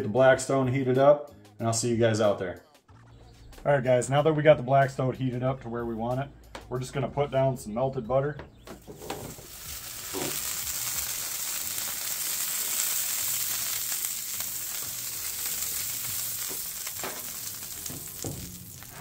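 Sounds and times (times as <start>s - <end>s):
butter sizzling on griddle: 8.9s - 19.0s.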